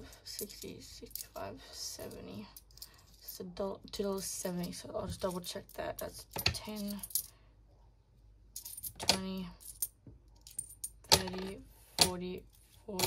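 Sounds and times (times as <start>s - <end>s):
coins clinking: 4.5s - 7.3s, 8.6s - 12.1s.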